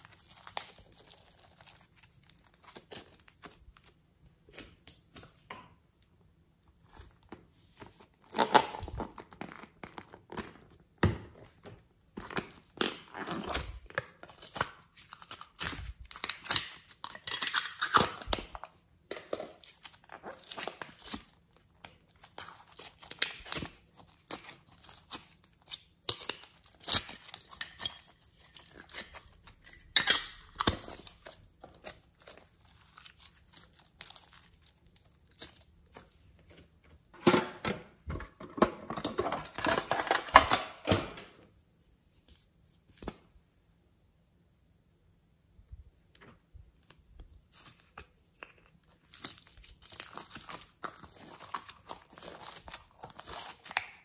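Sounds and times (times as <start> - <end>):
plastic packaging crinkling: 0.0 - 4.0, 19.5 - 37.0, 47.5 - 54.0.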